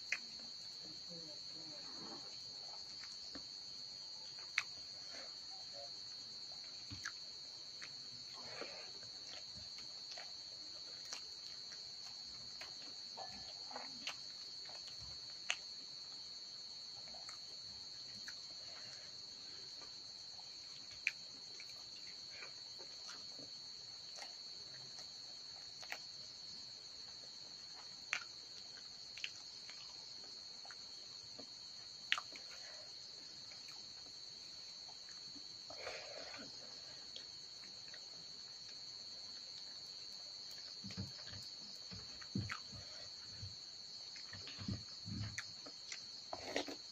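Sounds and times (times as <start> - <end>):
crickets trilling: 0.0 - 46.9.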